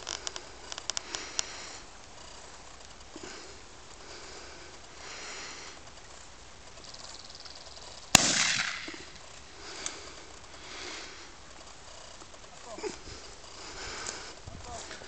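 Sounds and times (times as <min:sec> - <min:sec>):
shotgun shot with echo: 0:08.1 - 0:09.0.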